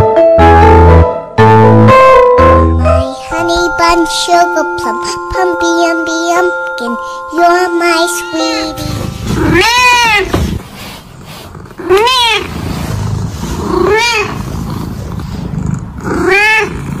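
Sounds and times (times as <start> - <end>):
cat meowing: 9.3 - 10.4, 11.8 - 12.6, 13.6 - 14.5, 16.0 - 16.9.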